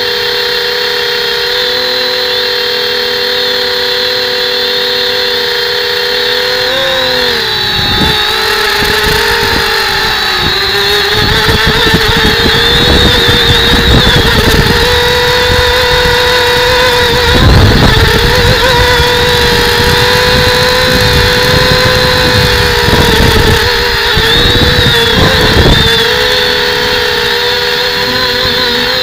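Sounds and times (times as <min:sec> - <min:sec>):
drone motors whining: 0:00.0 - 0:29.0
wind buffeting microphone: 0:07.0 - 0:29.0.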